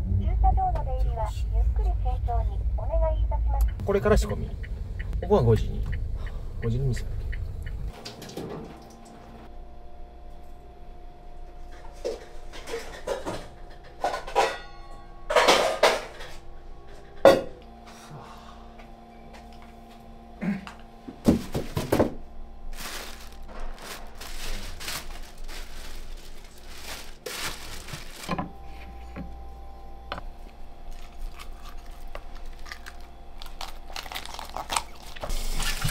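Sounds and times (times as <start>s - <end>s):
steady hum: 0.0s - 35.9s
dishes and pots clinking: 11.7s - 17.6s
scraping and rustling: 22.8s - 29.1s.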